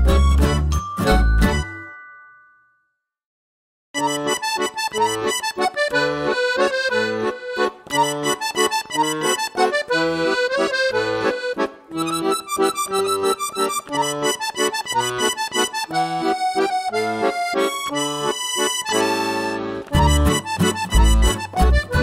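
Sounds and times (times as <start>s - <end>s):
background music: 0.0s - 2.2s.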